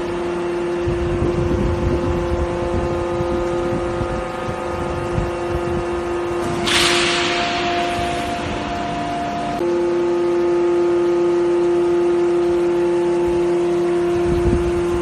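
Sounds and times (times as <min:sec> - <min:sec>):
higher machine tone: 0:00.0 - 0:15.0.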